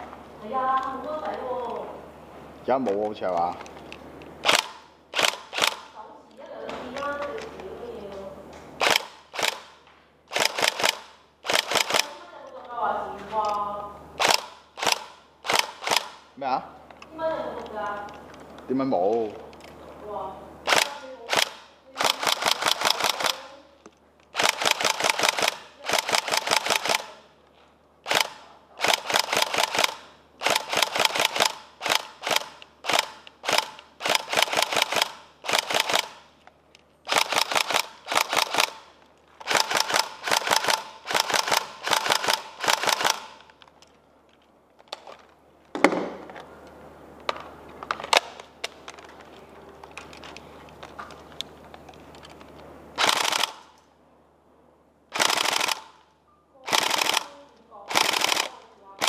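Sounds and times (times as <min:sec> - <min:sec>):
airsoft gun firing bursts: 0:04.4 - 0:05.9, 0:08.8 - 0:12.2, 0:14.2 - 0:16.2, 0:20.6 - 0:23.6, 0:24.3 - 0:27.3, 0:28.0 - 0:36.3, 0:37.1 - 0:43.5, 0:53.0 - 0:53.8, 0:55.1 - 0:56.0, 0:56.6 - 0:58.6.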